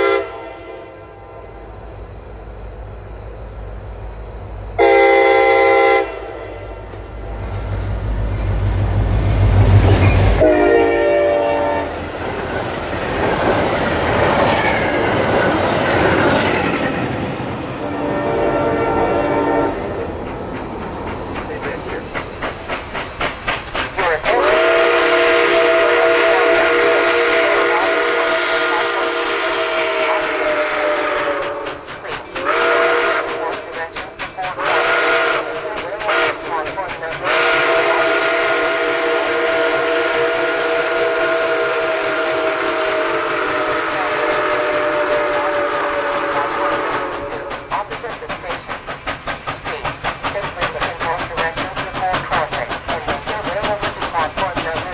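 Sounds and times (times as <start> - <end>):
steam whistle blasts: 0.0 - 1.6, 4.8 - 6.8, 10.4 - 12.0, 17.8 - 20.0, 24.3 - 31.8, 32.4 - 33.5, 34.6 - 36.4, 37.2 - 47.5
steam locomotive beat: 3.5 - 54.9.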